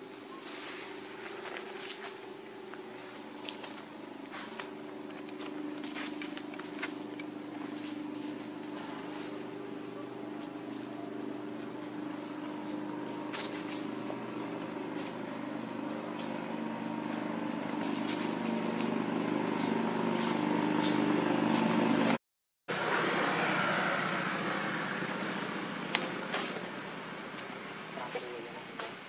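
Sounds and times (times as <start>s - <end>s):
low mechanical hum: 0.0s - 22.2s
insects buzzing: 0.0s - 29.0s.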